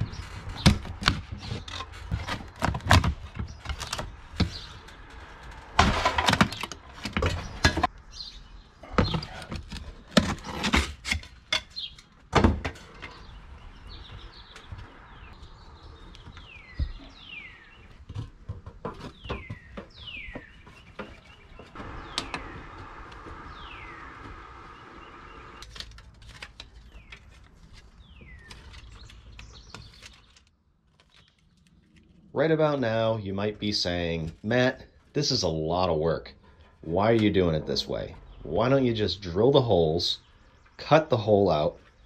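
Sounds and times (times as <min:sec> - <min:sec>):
bird chirping: 0:00.0 - 0:10.7, 0:11.6 - 0:25.7, 0:26.7 - 0:42.0
knocks taps and scrapes: 0:17.8 - 0:21.8.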